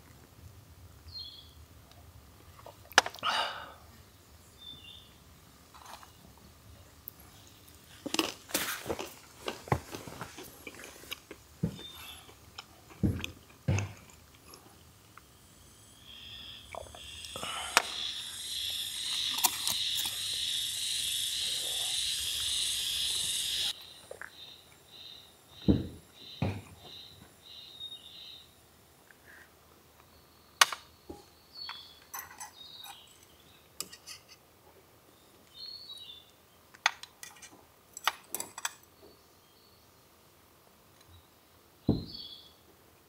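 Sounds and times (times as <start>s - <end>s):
faint chirps: 11.7s - 12.4s, 14.8s - 28.6s
insects buzzing and trilling: 14.8s - 28.6s
dull thump: 25.6s - 26.7s, 41.9s - 42.2s.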